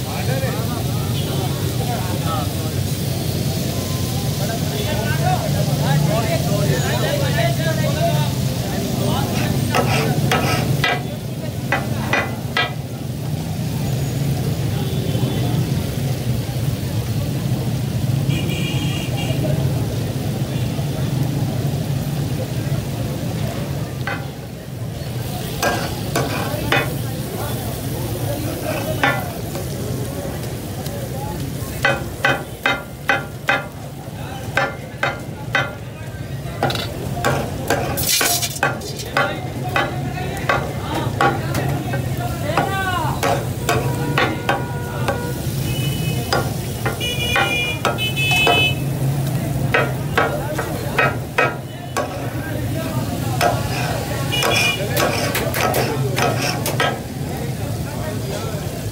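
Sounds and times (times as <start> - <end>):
chicken sizzling in oil: 0.0 - 58.9
metal spatulas scraping griddle: 9.2 - 11.1, 24.0 - 24.3, 25.5 - 27.0, 34.5 - 35.8, 36.6 - 45.5, 53.4 - 57.1.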